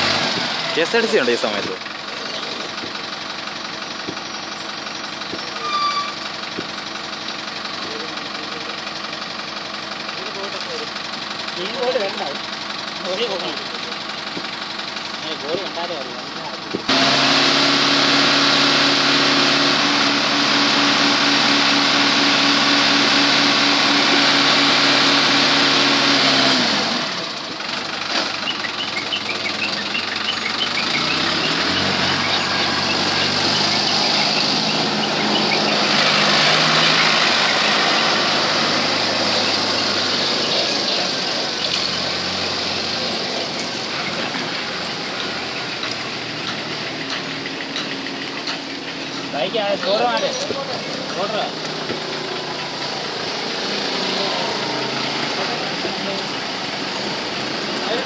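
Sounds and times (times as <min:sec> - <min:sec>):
motor engine running with hiss: 0:16.7 - 0:49.1.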